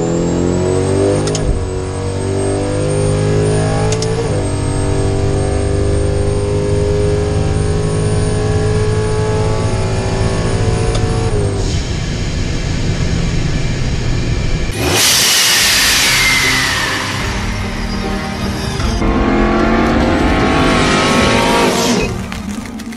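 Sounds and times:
truck engine accelerating: 0:00.0 - 0:22.9
whooshing sound effect: 0:14.7 - 0:22.4.

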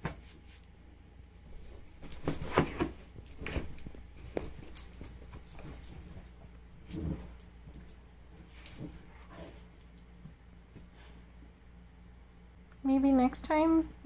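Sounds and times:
dog rustling blankets: 0:01.4 - 0:10.0.

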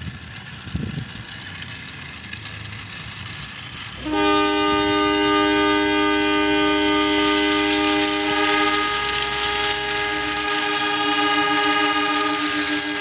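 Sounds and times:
train horn chord: 0:04.0 - 0:13.0.

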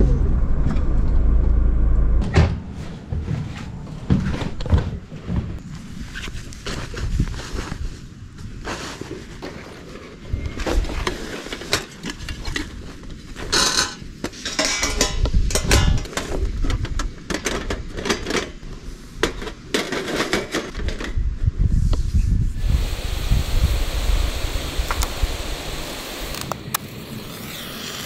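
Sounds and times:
low rumble: 0:00.0 - 0:04.9
dishes and utensils clinking: 0:13.8 - 0:16.1.

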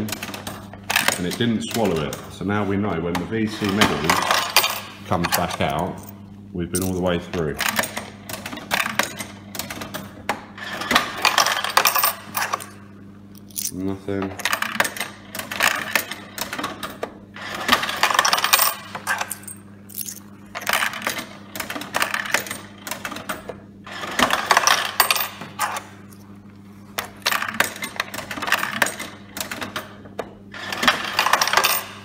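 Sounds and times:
coins clattering into cup: 0:04.0 - 0:06.1, 0:06.7 - 0:07.0, 0:11.2 - 0:12.8, 0:13.4 - 0:13.8, 0:17.7 - 0:21.3, 0:23.9 - 0:26.2, 0:30.6 - 0:32.0.

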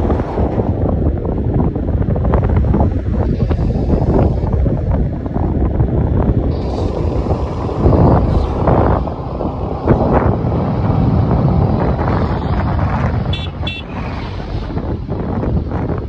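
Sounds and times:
wind buffeting microphone: 0:00.0 - 0:16.0
motorcycle horn beeps: 0:13.3 - 0:13.9.

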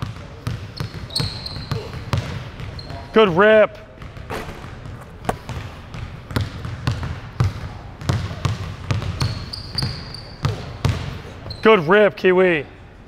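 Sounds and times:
basketball bouncing on wooden floor: 0:00.0 - 0:03.0, 0:03.8 - 0:11.2.

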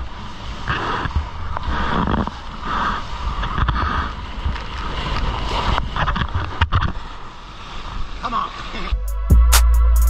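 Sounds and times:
paddling strokes splashing water: 0:00.0 - 0:08.9
wind rumble on microphone: 0:00.0 - 0:09.5.

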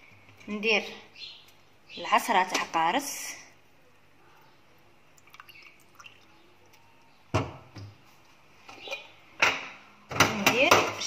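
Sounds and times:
lemon juice dripping: 0:05.1 - 0:07.2.

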